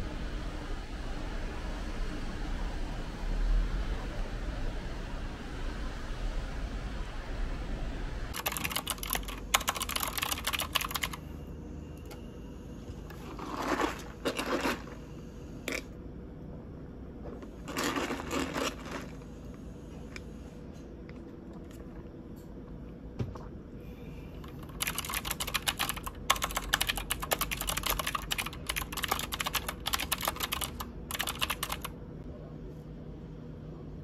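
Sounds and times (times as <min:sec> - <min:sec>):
mechanical keyboard clacking: 0:08.3 - 0:11.2, 0:24.4 - 0:31.9.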